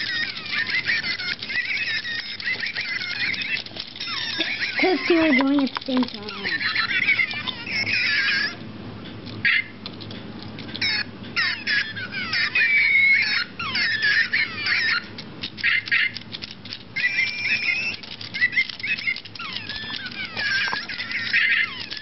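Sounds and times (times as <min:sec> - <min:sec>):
electronic toy chirps and beeps: 0:00.0 - 0:05.4, 0:10.7 - 0:16.2, 0:17.0 - 0:22.0.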